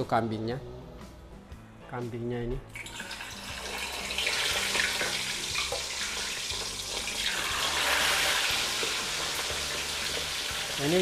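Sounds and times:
meat sizzling in hot oil: 2.8s - 11.0s.

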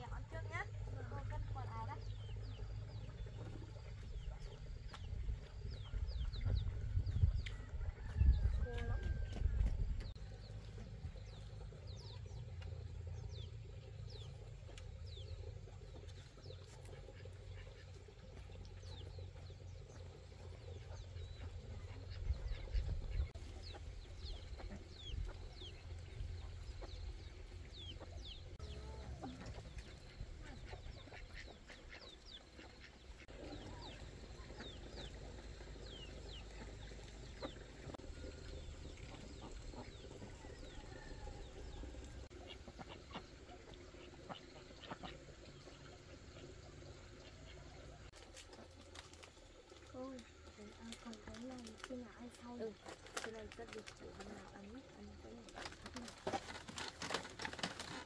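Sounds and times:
steady low rumble: 0.3s - 17.7s
chickens chirping: 0.5s - 48.1s.

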